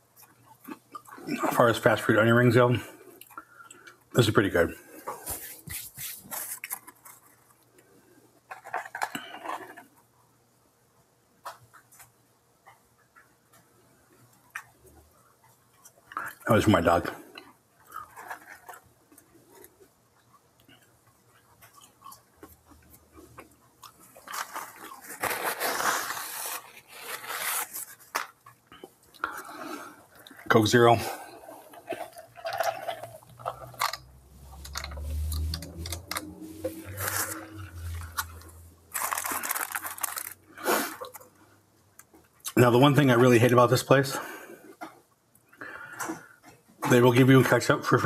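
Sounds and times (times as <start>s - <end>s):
paper napkin rustling: 5.2s - 6.7s, 24.4s - 28.1s
paper wrappers rustling: 5.2s - 7.6s, 24.1s - 28.6s, 31.8s - 41.3s.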